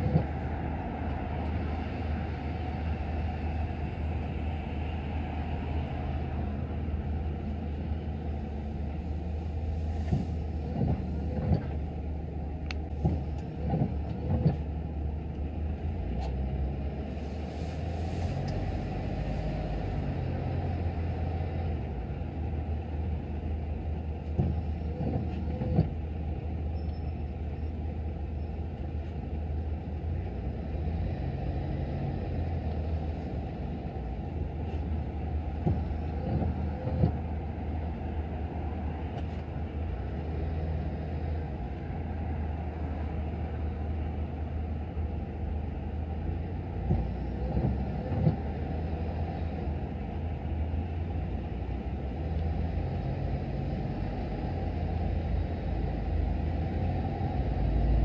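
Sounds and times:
car engine and road noise: 0:00.0 - 0:58.0.

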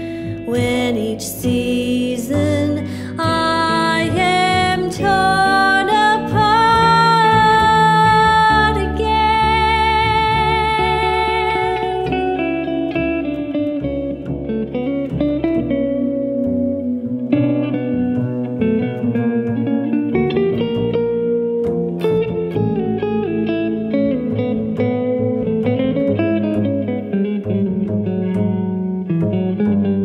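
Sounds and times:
woman singing: 0:00.0 - 0:13.0
electric guitar: 0:00.0 - 0:30.0
plucked double bass: 0:00.0 - 0:30.0.

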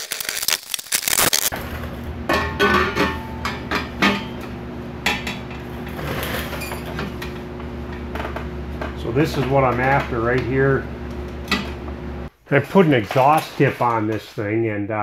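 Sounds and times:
steady low hum: 0:01.5 - 0:13.8
scraping handling noise: 0:01.5 - 0:14.6
metal pipe clinking and knocking: 0:02.3 - 0:05.7.

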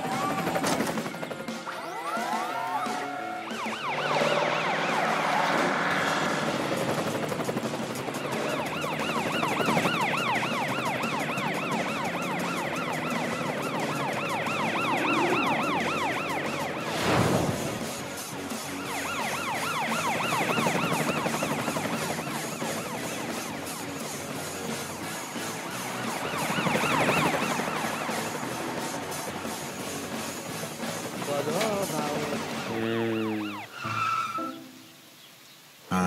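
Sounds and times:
cartoon sirens warbling: 0:00.0 - 0:06.6, 0:08.0 - 0:17.0, 0:17.8 - 0:23.9, 0:25.0 - 0:28.8, 0:31.5 - 0:34.7
whoosh: 0:16.8 - 0:17.9.

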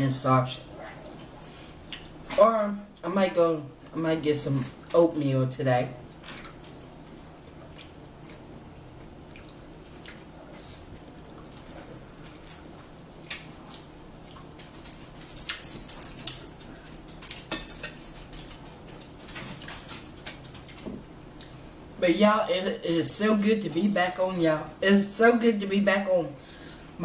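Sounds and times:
low room hum: 0:00.0 - 0:27.0
people chewing: 0:00.7 - 0:02.3, 0:06.1 - 0:21.7
forks clicking on plates: 0:12.0 - 0:20.9.

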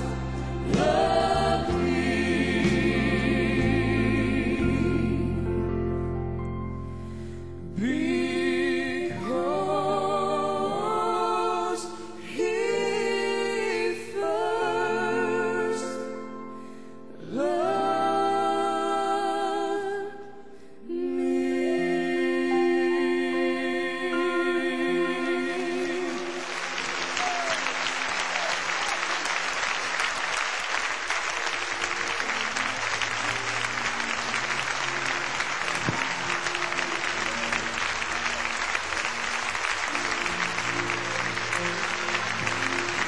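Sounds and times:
man and woman singing: 0:00.0 - 0:05.4, 0:07.8 - 0:16.1, 0:21.0 - 0:26.5
backing music: 0:00.0 - 0:16.4, 0:20.9 - 0:43.0
congregation applauding: 0:26.0 - 0:43.0.

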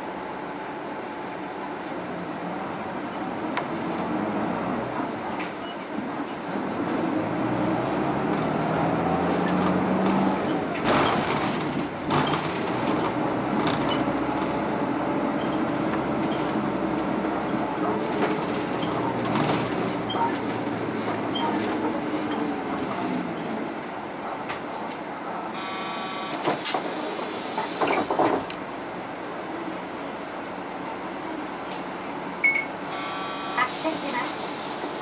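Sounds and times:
bus diesel engine running: 0:00.0 - 0:35.0
short buzzer: 0:25.6 - 0:26.5, 0:32.8 - 0:33.7
compressed air hiss: 0:33.6 - 0:35.0.

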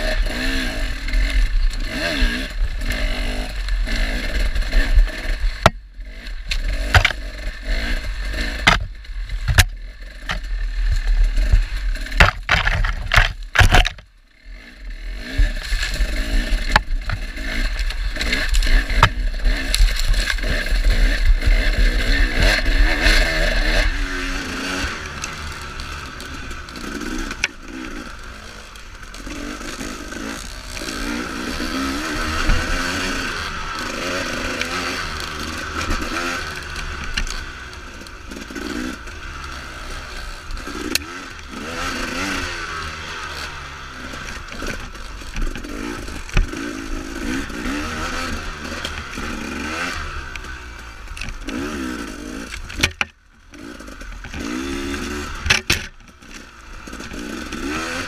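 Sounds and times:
dirt bike engine revving: 0:00.0 - 0:58.0
bike knocks and clatter: 0:06.6 - 0:07.9, 0:08.6 - 0:14.1, 0:15.3 - 0:23.3, 0:55.4 - 0:56.1.

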